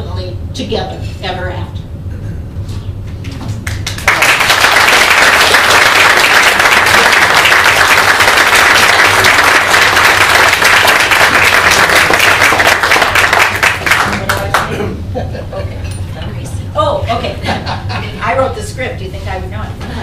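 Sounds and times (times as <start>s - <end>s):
audience applauding: 3.6s - 14.7s.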